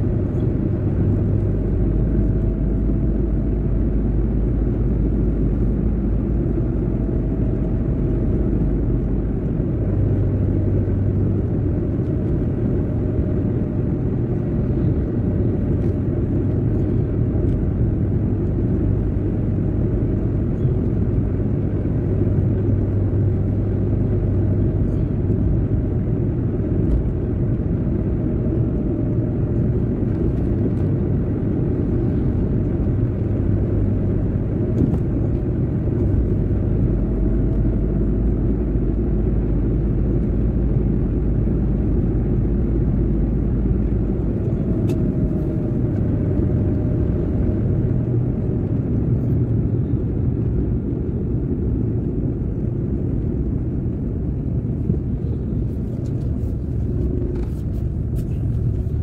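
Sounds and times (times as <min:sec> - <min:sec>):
car engine and tyre rumble: 0:00.0 - 0:59.0.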